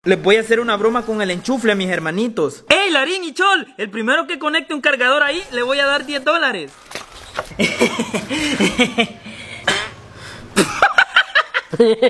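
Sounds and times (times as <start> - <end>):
hearty laughter: 7.5 - 9.7, 10.6 - 12.0.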